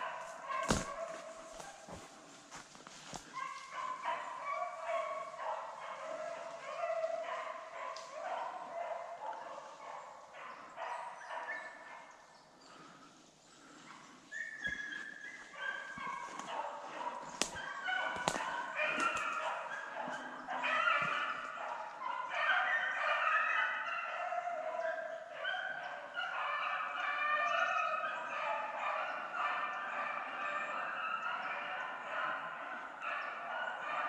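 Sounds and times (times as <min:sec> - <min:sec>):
hounds baying in chorus: 0:00.0 - 0:34.0.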